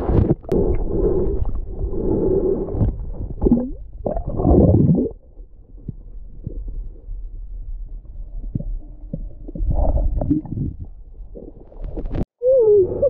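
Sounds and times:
underwater rumbling and gurgling: 0.0 - 13.0.

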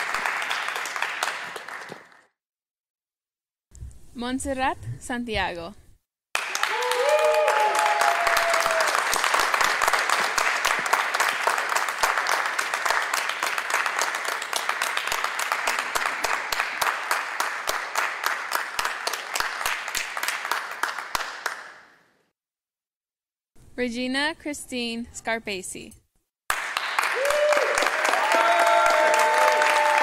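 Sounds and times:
audience applauding: 0.0 - 2.3, 6.4 - 21.7, 26.5 - 30.0
short cheering voices: 6.4 - 9.2, 27.0 - 30.0.

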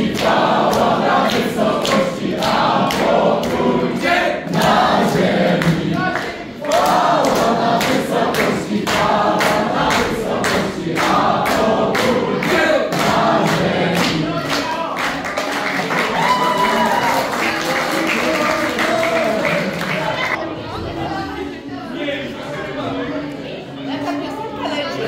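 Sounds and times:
hands clapping in time: 0.0 - 3.7, 4.5 - 20.4
group singing together: 0.0 - 15.0.

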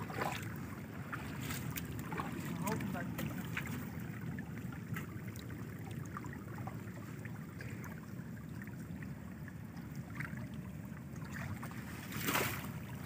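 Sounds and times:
floodwater rushing over stones: 0.0 - 4.1.

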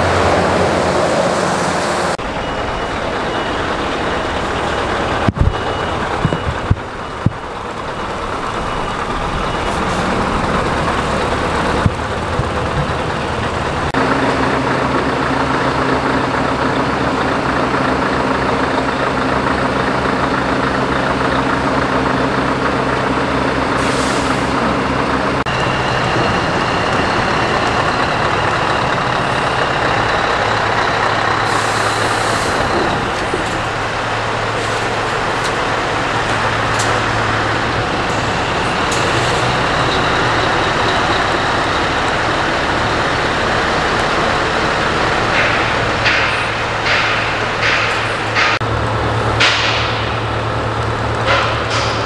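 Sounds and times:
truck engines running: 0.0 - 52.0
air brake hisses: 23.8 - 24.6, 31.4 - 32.7.

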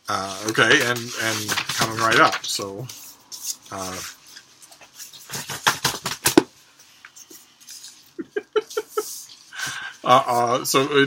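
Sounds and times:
man laughing: 8.2 - 9.8.

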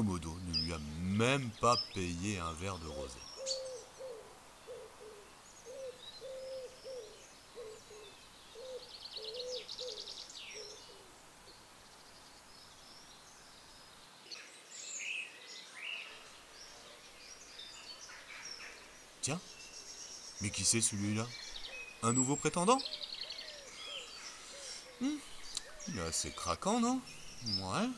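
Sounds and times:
bird trill: 0.0 - 11.0
songbird chirps: 0.0 - 27.9
bird cooing: 2.9 - 11.1, 22.8 - 26.5.

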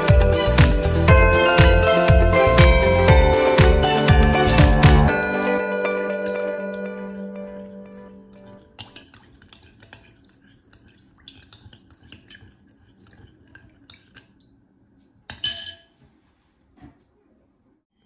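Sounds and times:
spoon stirring batter in glass bowl: 7.5 - 14.4.

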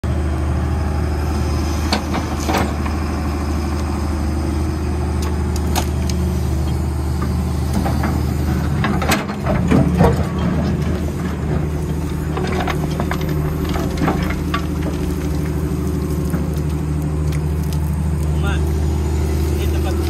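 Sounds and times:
excavator diesel engine running: 0.0 - 20.0
bucket knocking and scraping gravel: 8.8 - 18.6.

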